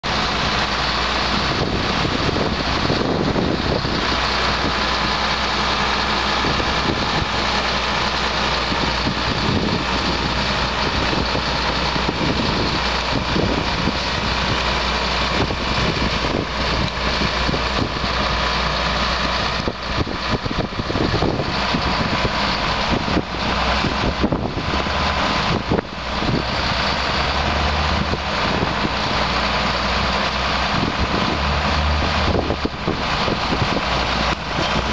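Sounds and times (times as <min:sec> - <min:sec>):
diesel engine running: 0:00.0 - 0:34.9.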